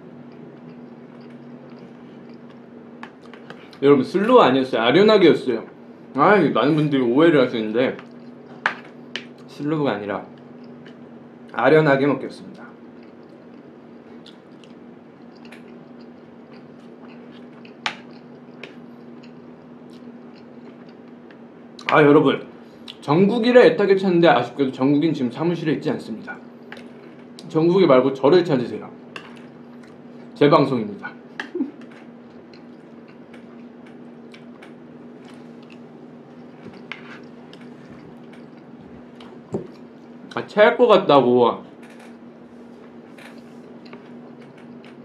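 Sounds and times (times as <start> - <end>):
steady low hum: 0.0 - 45.0
person chewing food: 0.2 - 3.8, 8.0 - 9.5, 10.4 - 11.0, 12.8 - 21.4, 29.2 - 30.3, 31.4 - 40.4, 43.3 - 45.0.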